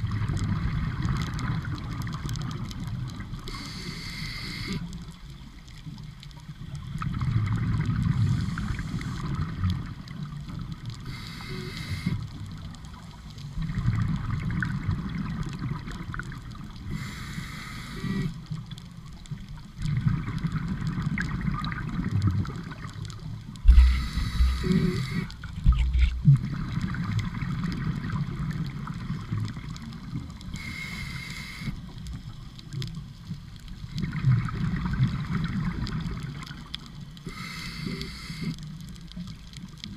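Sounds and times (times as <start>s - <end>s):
exhaled air bubbling underwater: 0.0s - 39.9s
scuba regulator inhale hiss: 3.5s - 5.0s, 8.2s - 9.3s, 11.0s - 12.3s, 16.9s - 18.4s, 23.7s - 25.5s, 30.5s - 31.9s, 37.2s - 38.7s
low thumps: 23.6s - 24.9s, 25.5s - 26.4s.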